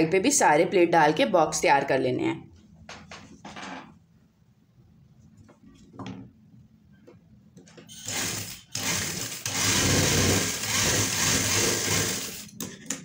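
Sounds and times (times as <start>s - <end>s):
sewing machine stitching: 8.0s - 12.6s.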